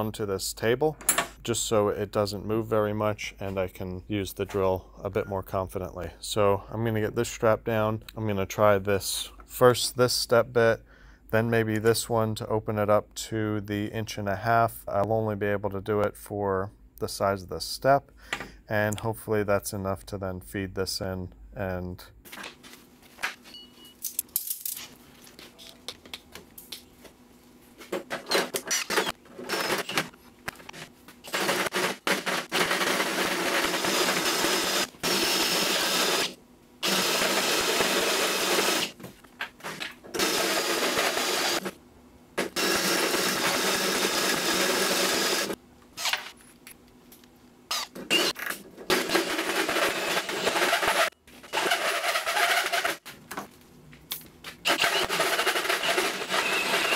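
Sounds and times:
drill boring into steel: 31.3s - 38.9s, 40.2s - 41.7s, 42.5s - 46.1s, 48.9s - 53.0s, 54.7s - 56.9s.

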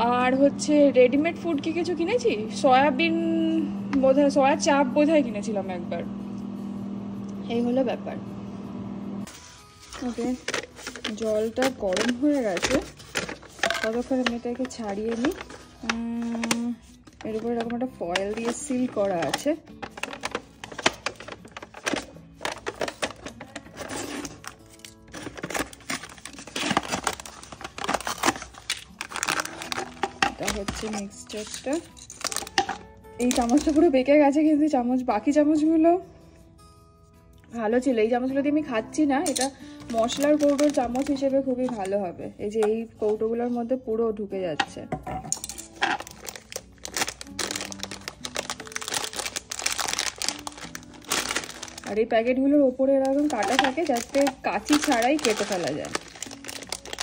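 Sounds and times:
foil lid peeling: 9.3s - 33.8s, 39.9s - 41.2s, 45.5s - 52.0s, 53.0s - 57.0s
foil packet crinkling: 9.4s - 33.8s, 39.3s - 41.8s, 45.4s - 52.1s, 53.0s - 57.0s.

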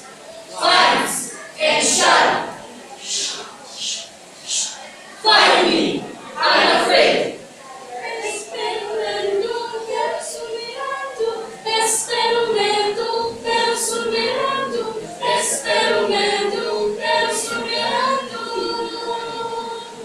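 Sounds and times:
group singing unaccompanied: 0.0s - 20.0s
short sharp hiss: 3.0s - 4.8s.

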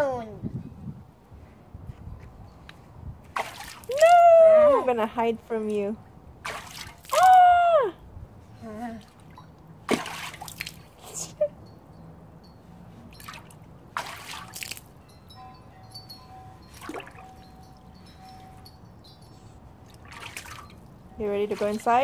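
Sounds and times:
hands splashing water: 6.4s - 7.4s, 9.9s - 11.0s, 13.2s - 14.9s, 19.9s - 20.8s
water dripping and trickling: 9.1s - 11.0s, 13.1s - 15.0s, 15.9s - 22.0s.

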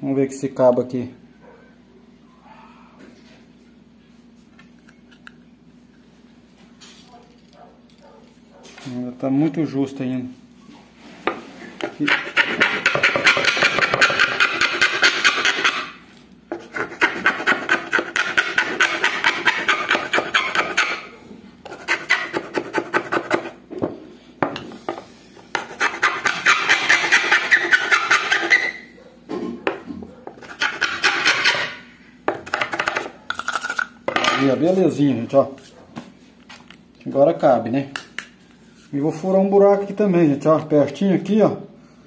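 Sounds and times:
file rasping on plastic pipe: 11.8s - 23.6s, 25.5s - 28.8s, 30.4s - 31.8s.

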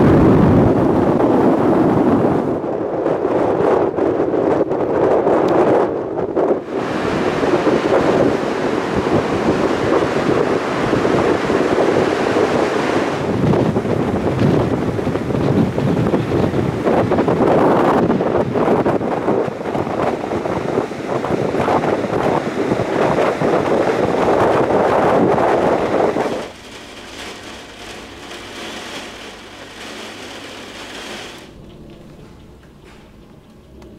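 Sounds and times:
wind blowing over microphone: 0.0s - 33.9s
ocean surf breaking on beach: 6.4s - 32.0s
steady hiss: 22.8s - 33.9s.

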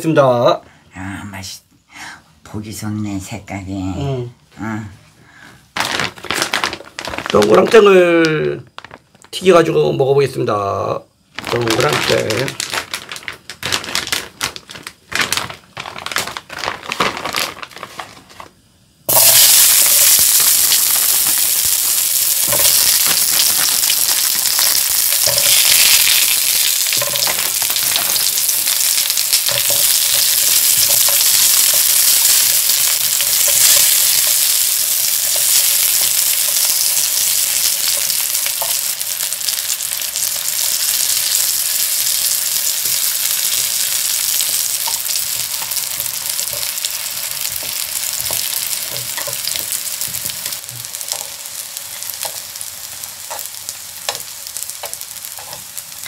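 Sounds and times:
plastic bag crinkling: 5.7s - 9.4s, 11.3s - 53.4s
patties sizzling in oil: 5.7s - 56.0s
frozen patties clattering into pan: 5.8s - 8.0s, 11.4s - 18.5s, 22.3s - 51.5s
chopsticks tapping: 47.5s - 51.3s.

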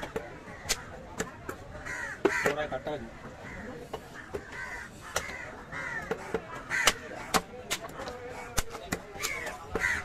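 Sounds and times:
crows cawing: 0.2s - 1.1s, 1.8s - 7.4s, 9.2s - 10.0s
knife striking wooden chopping block: 6.0s - 9.9s.

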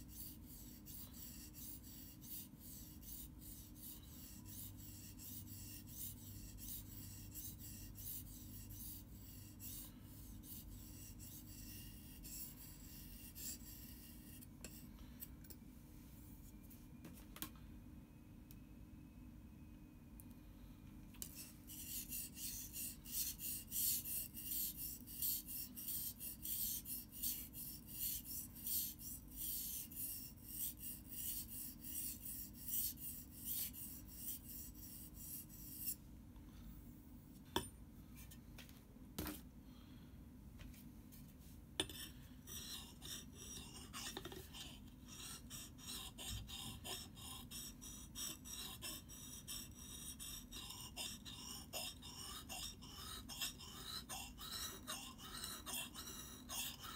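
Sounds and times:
knife scraping on whetstone: 0.0s - 14.8s, 21.2s - 36.0s, 41.8s - 56.9s.

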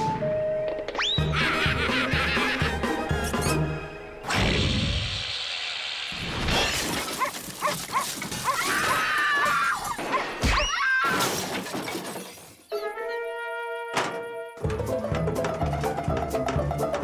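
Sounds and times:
cartoon crashing clatter: 6.1s - 8.5s.

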